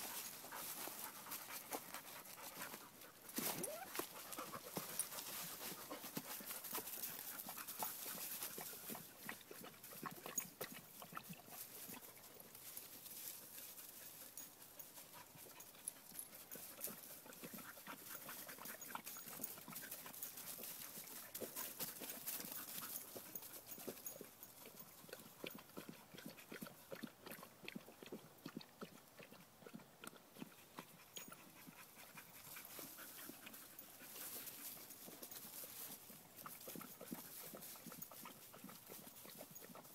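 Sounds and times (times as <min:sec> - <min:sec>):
dog panting: 0:00.1 - 0:10.4, 0:13.8 - 0:27.1, 0:29.3 - 0:39.9.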